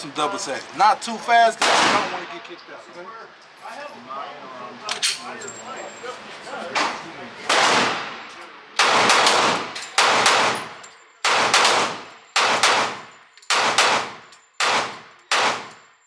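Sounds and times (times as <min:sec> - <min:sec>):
pistol shots echoing indoors: 0:08.8 - 0:15.9.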